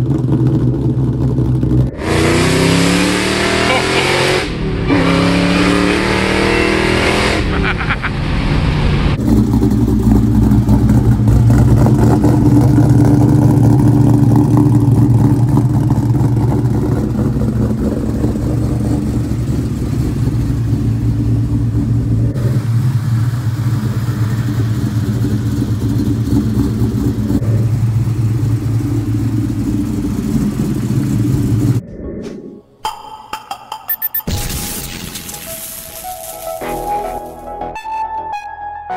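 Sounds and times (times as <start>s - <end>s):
car engine idling: 0.0s - 2.0s, 9.2s - 31.8s.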